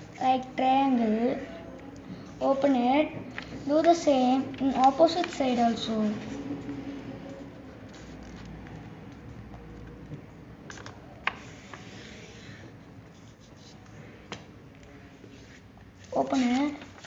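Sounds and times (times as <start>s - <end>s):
paper rustling and scraping: 3.4s - 8.8s, 10.7s - 14.2s, 15.3s - 17.0s.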